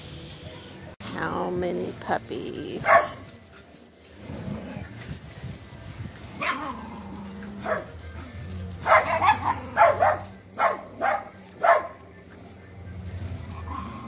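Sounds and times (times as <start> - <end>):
puppies yapping: 6.3 - 12.6.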